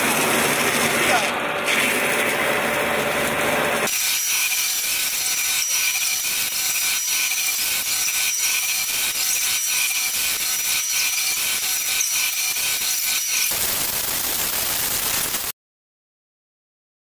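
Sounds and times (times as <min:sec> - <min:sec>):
foam cutting hiss: 0:13.4 - 0:15.5.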